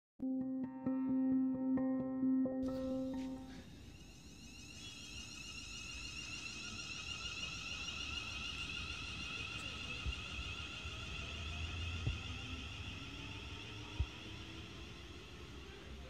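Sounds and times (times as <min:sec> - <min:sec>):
train motors whining: 0:04.7 - 0:16.0.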